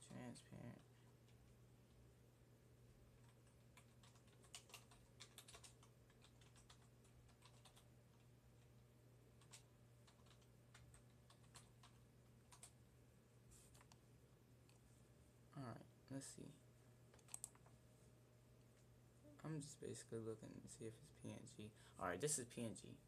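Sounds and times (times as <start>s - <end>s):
faint keyboard typing: 0.0s - 2.0s, 3.1s - 12.8s, 13.5s - 14.9s, 17.1s - 17.8s.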